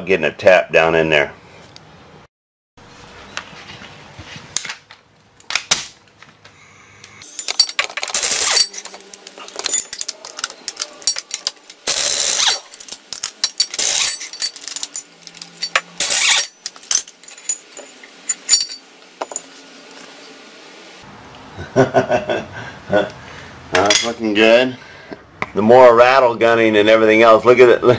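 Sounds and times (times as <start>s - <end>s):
metallic clicks and clinks: 7.2s - 19.4s.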